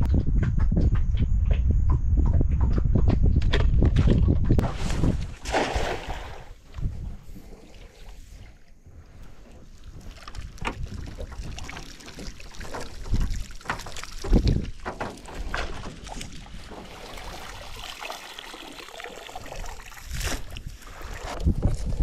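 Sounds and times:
knocks and heavy thumps: 0.0s - 5.2s
water splashing and dripping: 4.6s - 21.4s.

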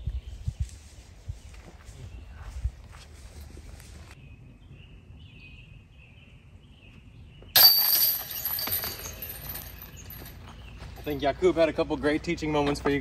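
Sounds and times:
disc golf chains jingling: 7.6s - 11.3s.

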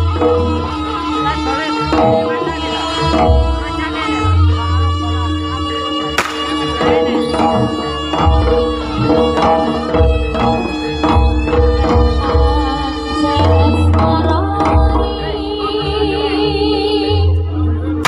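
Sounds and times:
sustained melodic tones: 0.0s - 18.0s
hand drums beating: 6.2s - 15.2s.

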